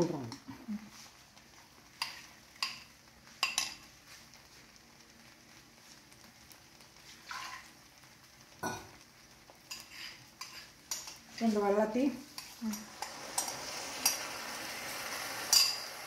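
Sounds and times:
vegetables hissing in oil: 0.0s - 16.0s
utensils clinking against pot: 15.5s - 15.9s.

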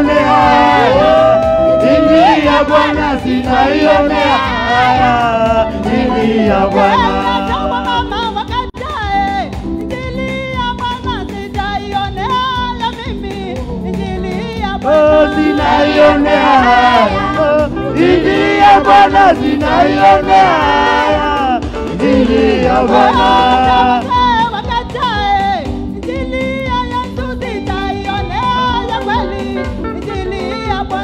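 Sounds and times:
group singing worship song: 0.0s - 8.4s, 14.8s - 25.3s
instrumental backing with beat: 0.0s - 31.0s.

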